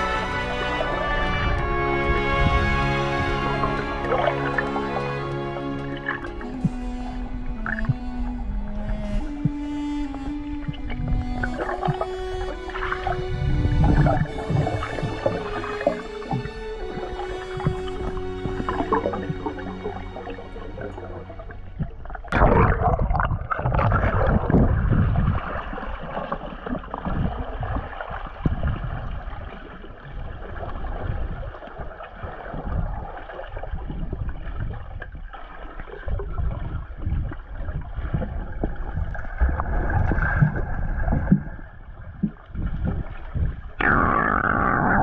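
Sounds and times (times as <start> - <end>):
music track: 0.0 - 22.6
underwater gurgling and bubbling: 0.0 - 45.0.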